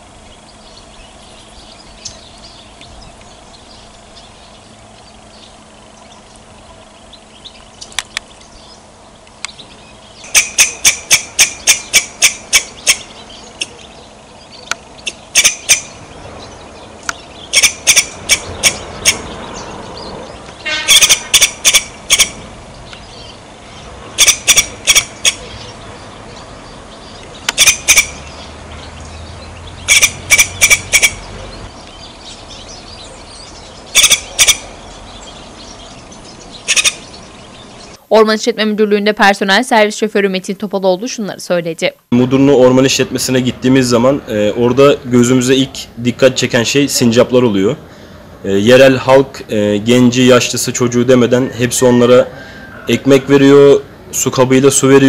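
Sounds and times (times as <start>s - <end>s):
squirrel chirping: 0.0s - 38.6s.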